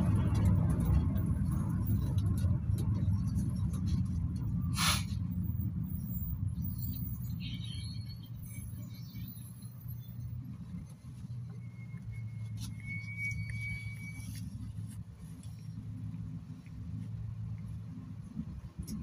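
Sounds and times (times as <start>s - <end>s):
engine and road rumble: 0.0s - 19.0s
short hiss: 4.7s - 5.2s.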